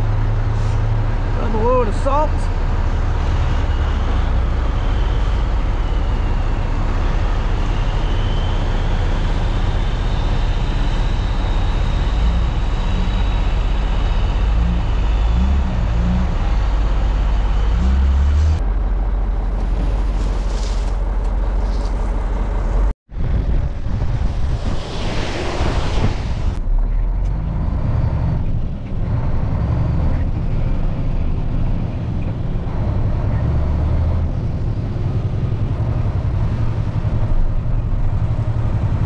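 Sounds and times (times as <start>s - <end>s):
diesel truck engine rumbling: 0.0s - 39.0s
road noise: 0.0s - 39.0s.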